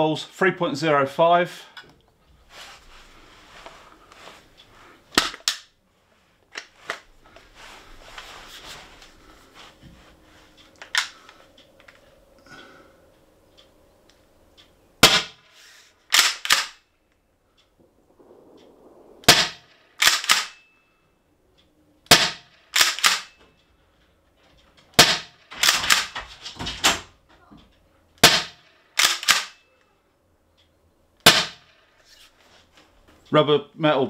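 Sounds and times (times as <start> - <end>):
launcher shot crack: 17.8 - 20.7.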